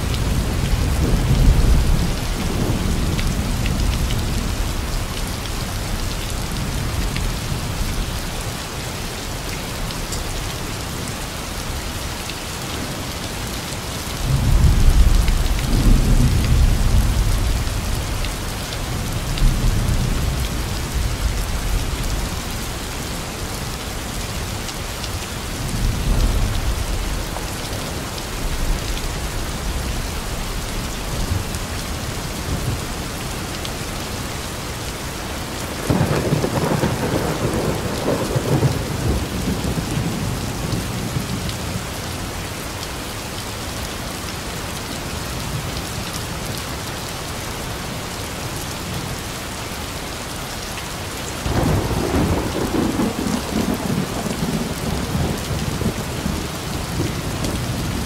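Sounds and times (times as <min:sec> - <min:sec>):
heavy rain: 0:00.0 - 0:58.0
thunder: 0:35.9 - 0:40.8, 0:51.4 - 0:56.4.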